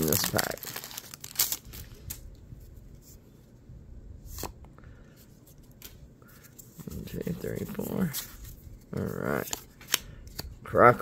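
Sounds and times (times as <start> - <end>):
trading cards rustling: 0.0 - 2.2, 5.3 - 11.0.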